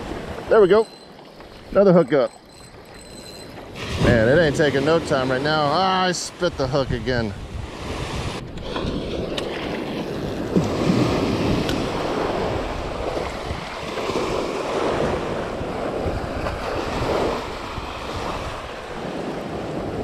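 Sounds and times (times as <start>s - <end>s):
small waves breaking on sand: 3.7s - 20.0s
wind buffeting microphone: 6.4s - 20.0s.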